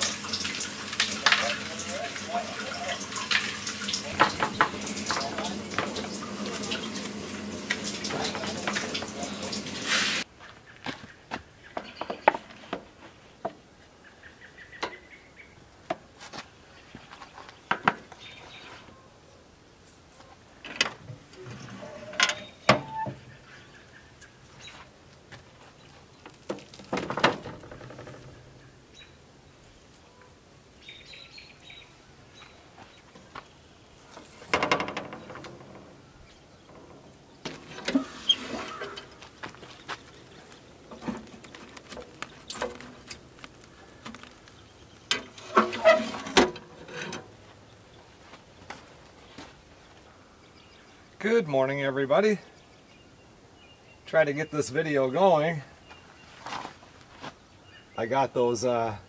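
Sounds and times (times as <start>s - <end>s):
firewood knocking against metal: 4.1s - 6.8s, 26.4s - 28.4s, 34.4s - 44.5s
metal smoker lid clanking: 20.8s - 23.3s, 34.3s - 39.2s, 45.1s - 47.4s.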